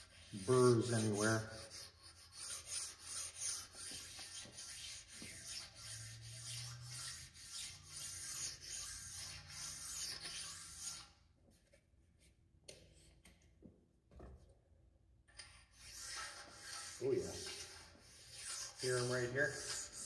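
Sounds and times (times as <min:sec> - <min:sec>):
sharpening stone scraping metal: 0:00.0 - 0:11.2, 0:15.4 - 0:20.0.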